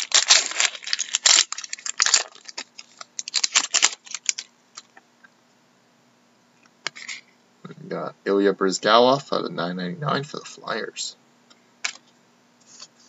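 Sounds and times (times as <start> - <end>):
cards clicking and rustling: 0.0 - 4.9, 11.8 - 12.1.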